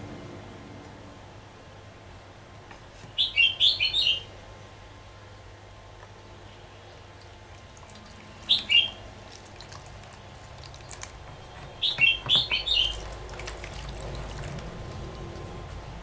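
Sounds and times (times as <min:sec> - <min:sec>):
bird chirping: 0:03.2 - 0:04.3, 0:08.4 - 0:09.0, 0:11.7 - 0:13.1.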